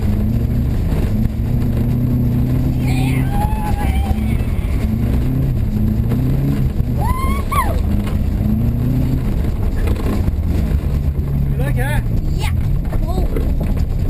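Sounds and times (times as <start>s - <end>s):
car engine accelerating: 0.0s - 14.0s
child shouting: 2.9s - 4.5s, 7.0s - 7.8s.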